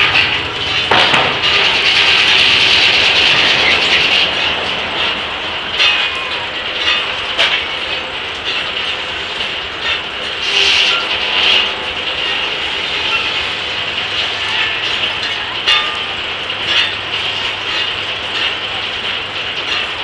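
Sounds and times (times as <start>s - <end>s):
sawmill carriage rattling and clanking: 0.0s - 20.0s
sharp knocks: 0.2s - 1.7s.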